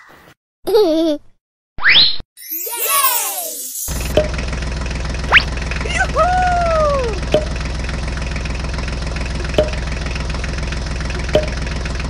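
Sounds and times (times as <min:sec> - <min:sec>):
tractor engine idling: 0:03.9 - 0:12.0.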